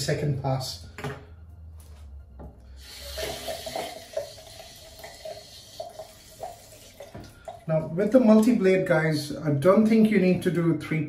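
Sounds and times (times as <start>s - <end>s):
tap water running into sink: 2.8s - 7.7s.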